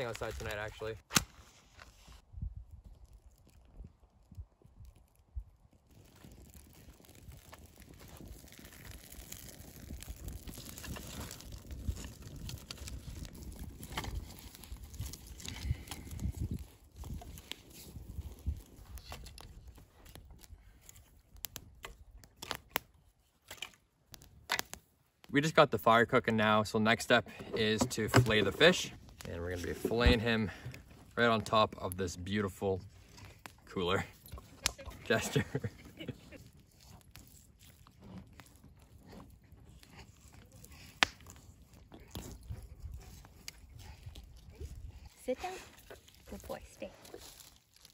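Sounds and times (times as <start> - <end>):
sharp fire pops: 0.0 - 1.5, 40.7 - 41.4
campfire crackling: 0.0 - 47.9.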